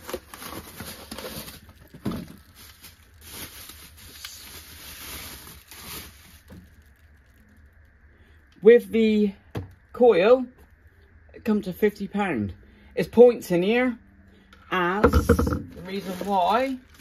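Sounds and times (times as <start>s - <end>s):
bubble wrap crinkling: 0.0s - 8.0s, 15.1s - 17.0s
firm knock: 15.0s - 15.7s.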